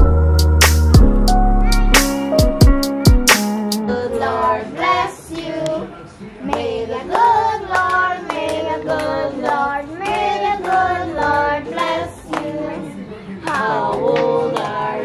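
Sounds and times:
rhythmic hand clapping: 0.6s - 1.3s, 2.0s - 3.8s, 6.4s - 15.0s
group of voices singing: 3.8s - 15.0s.

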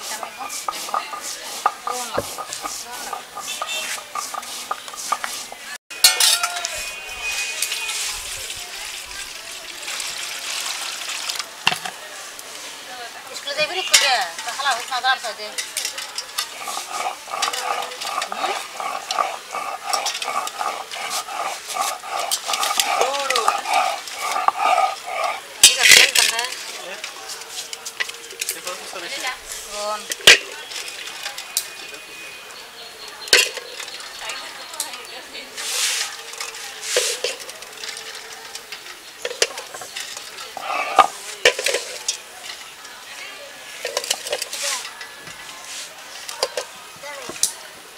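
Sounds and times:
water swishing in bowl: 0.0s - 5.8s, 15.6s - 26.4s, 35.5s - 38.3s, 39.2s - 42.1s.

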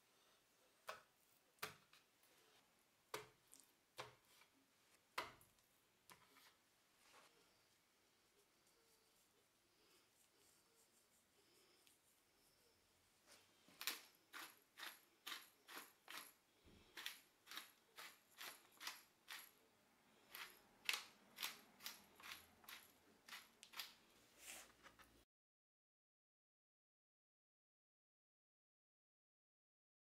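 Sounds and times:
pepper mill grinding: 13.8s - 19.6s, 20.2s - 24.0s.

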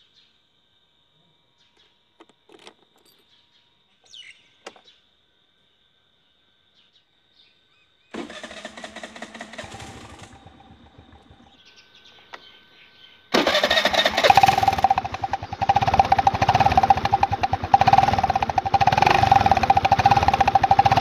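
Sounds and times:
scooter engine starting and idling: 8.2s - 11.8s, 13.3s - 21.0s.

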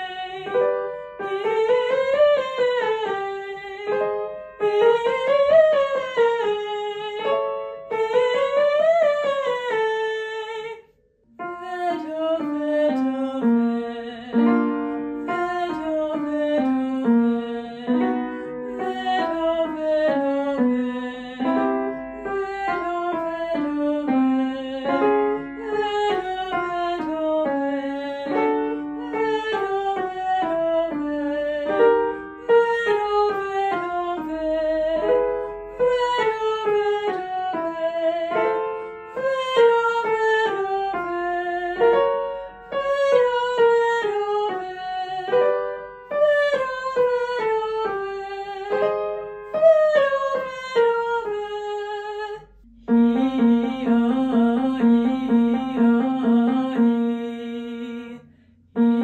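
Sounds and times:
upright piano: 0.0s - 59.0s
woman singing vocal scales: 0.0s - 59.0s.

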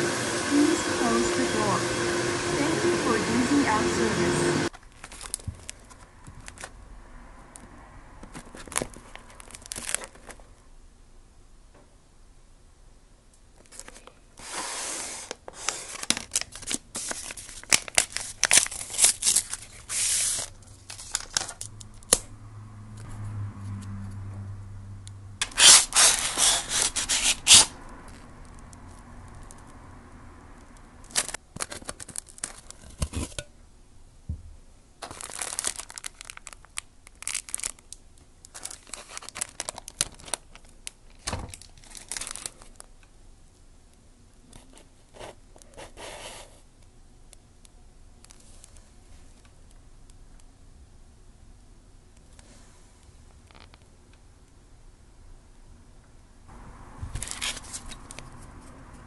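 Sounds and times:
cardboard and plastic rustling: 4.7s - 6.7s, 8.2s - 10.6s, 13.6s - 21.7s, 31.1s - 33.4s, 35.0s - 43.0s, 57.1s - 58.7s
paper strip tearing: 25.4s - 27.7s.

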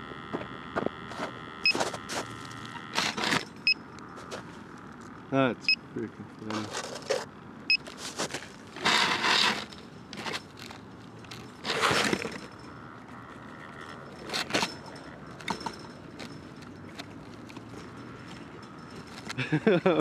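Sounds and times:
rustling scrapes: 1.1s - 3.5s, 6.5s - 12.6s.

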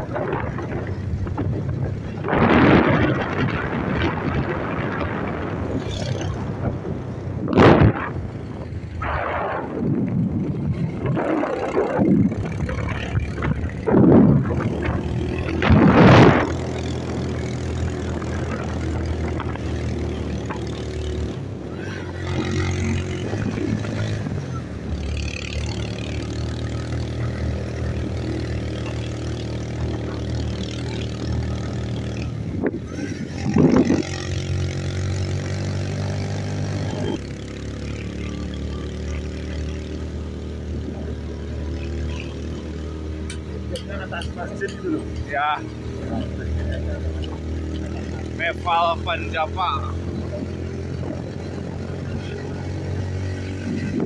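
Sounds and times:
vehicle engine humming: 0.0s - 54.0s.

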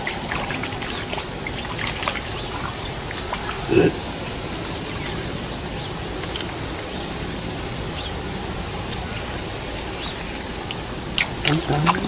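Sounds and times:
high-pitched insect drone: 0.0s - 12.0s
outdoor background noise: 0.0s - 12.0s.

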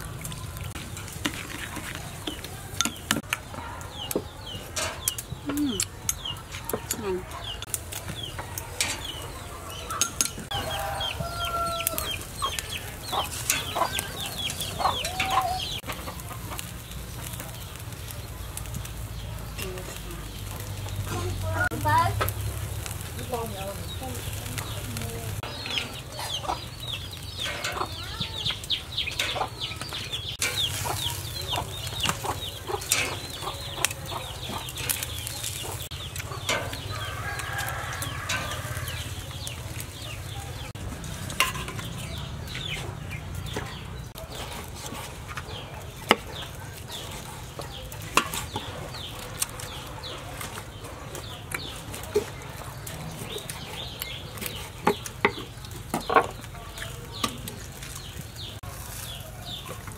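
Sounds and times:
chickens chirping: 0.0s - 59.9s
metal tongs clicking on grill: 2.4s - 10.5s, 11.4s - 16.7s, 26.8s - 40.0s, 45.5s - 49.8s, 50.4s - 55.4s.

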